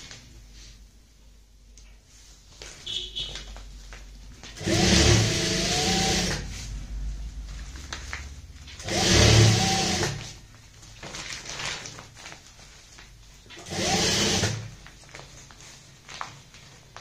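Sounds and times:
fabric rustling: 0.0s - 4.6s, 6.5s - 8.8s, 10.2s - 13.6s, 14.7s - 17.0s
sewing machine stitching: 4.5s - 6.5s, 8.8s - 10.4s, 13.5s - 14.8s.

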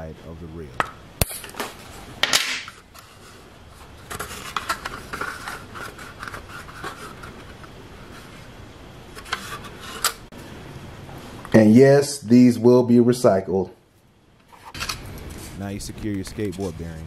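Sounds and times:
plastic scraping and rubbing: 2.8s - 8.5s, 9.1s - 10.3s.

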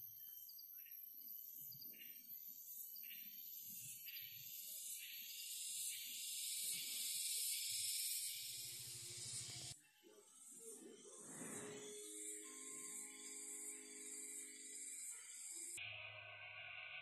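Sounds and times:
high-pitched insect drone: 4.6s - 15.9s.

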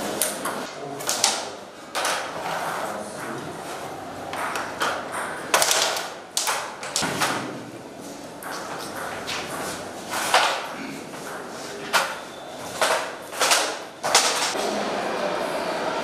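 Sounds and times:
room noise: 0.0s - 16.0s
carrom striker hitting coins: 0.4s - 2.4s, 4.4s - 7.5s, 11.9s - 14.6s.

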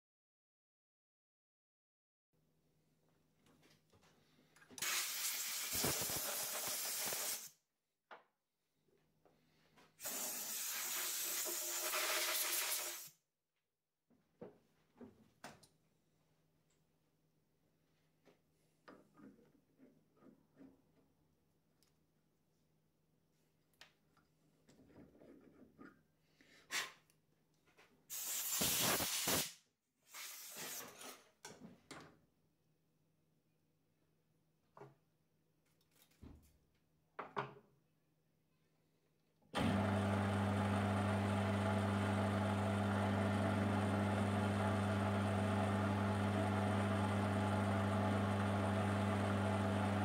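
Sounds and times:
compressed air blow gun hissing: 4.8s - 7.5s, 28.1s - 29.5s.

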